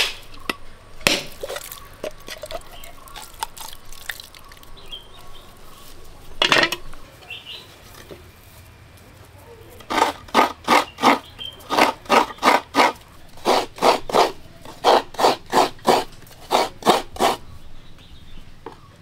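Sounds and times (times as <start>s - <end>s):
coconut rasping on grater: 9.8s - 17.4s.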